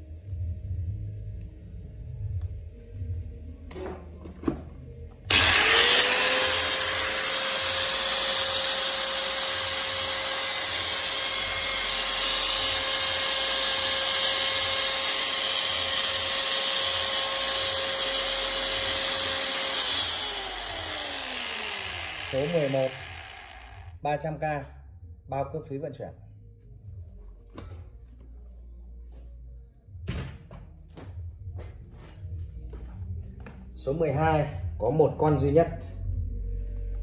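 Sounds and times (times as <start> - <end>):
angle grinder whining: 5.1 - 24.0.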